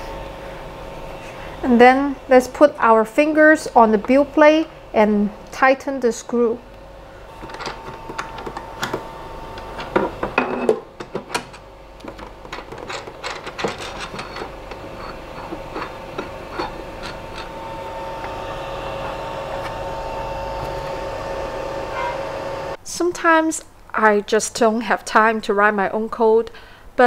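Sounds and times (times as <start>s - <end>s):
two-tone hum: 12.0s - 22.8s.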